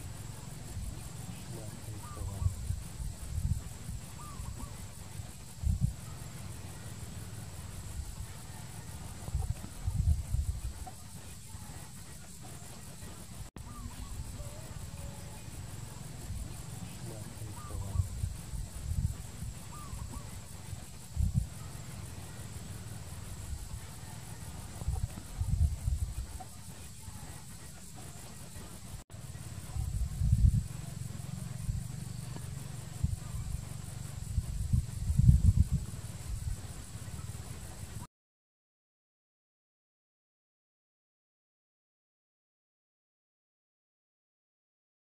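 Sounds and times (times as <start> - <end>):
low rumbles on microphone: 0.0 - 8.4, 9.0 - 11.0, 13.4 - 26.4, 29.4 - 38.1
high insect drone: 0.0 - 38.1.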